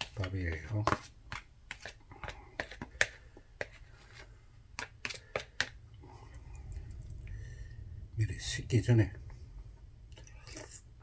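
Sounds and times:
spoon scraping plastic bowl: 0:00.0 - 0:05.8.

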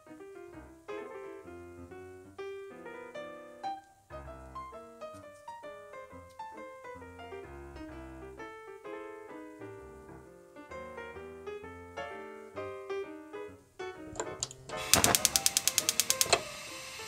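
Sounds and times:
piano music: 0:00.0 - 0:17.0
sharp clicks: 0:14.2 - 0:16.4.

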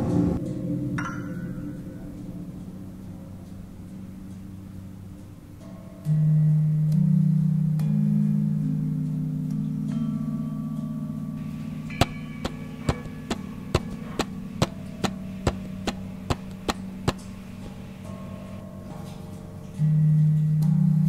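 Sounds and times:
sharp ticks: 0:12.0 - 0:17.5.

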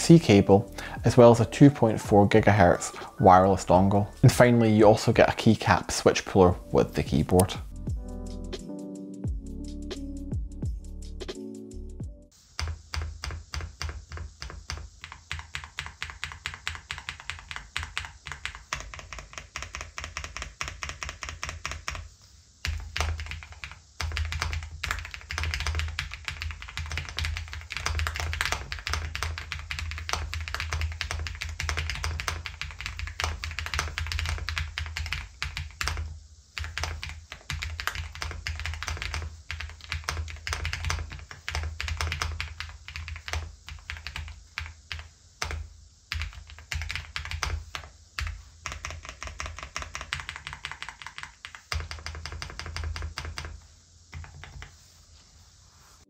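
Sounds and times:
mechanical keyboard typing: 0:12.6 - 0:54.7.

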